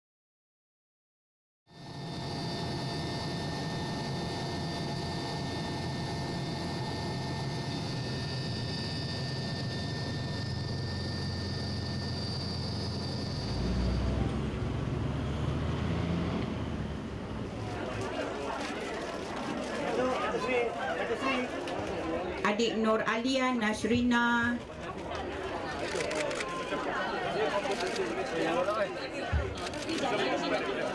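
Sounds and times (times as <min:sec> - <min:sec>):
aircraft cabin drone: 0:01.7 - 0:18.1.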